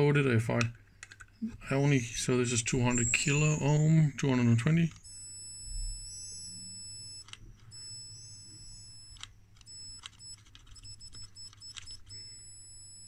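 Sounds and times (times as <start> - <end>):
high-pitched electronic whine: 1.4 - 4.9.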